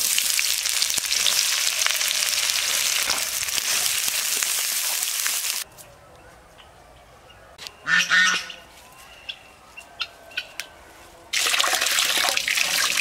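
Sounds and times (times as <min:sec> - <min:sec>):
waterfowl honking: 0:07.8 - 0:08.6
water splashing into a bowl: 0:11.4 - 0:13.0.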